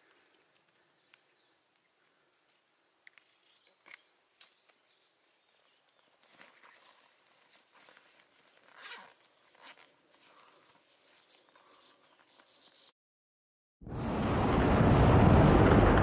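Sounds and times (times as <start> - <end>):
small clicks: 3.0 - 4.8
hands rustling and scraping mushroom: 5.9 - 12.9.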